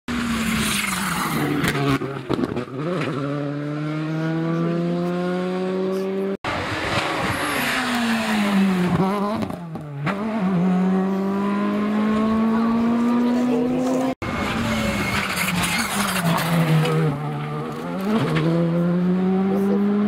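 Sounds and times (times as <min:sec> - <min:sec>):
rally car engine at full throttle: 0:00.1 - 0:20.0.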